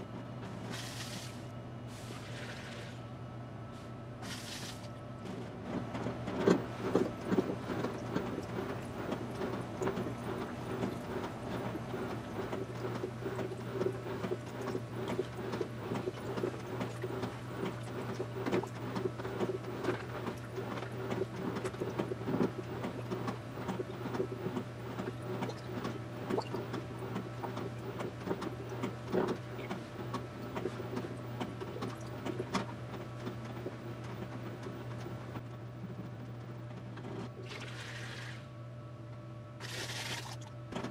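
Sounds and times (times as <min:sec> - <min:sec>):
washing machine hum: 0:00.0 - 0:40.9
water sloshing in drum: 0:05.8 - 0:35.4, 0:37.0 - 0:38.5, 0:39.6 - 0:40.9.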